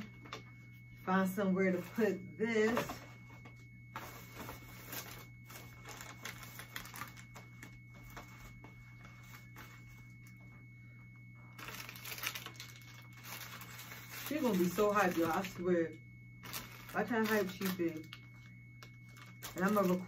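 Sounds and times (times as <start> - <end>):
steady low hum: 0.0 - 20.0
candy packages crinkling: 4.8 - 8.3, 11.5 - 15.6, 16.4 - 20.0.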